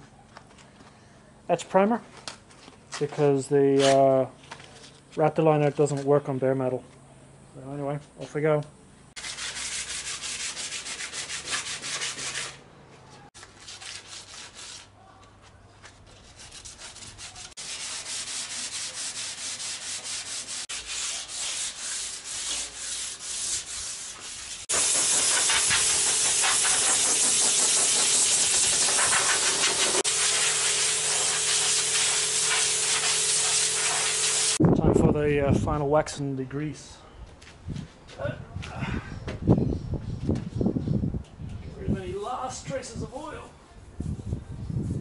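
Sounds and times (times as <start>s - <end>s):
sanding sponge on metal panel: 9.2s - 12.6s, 13.6s - 14.9s, 16.1s - 34.6s.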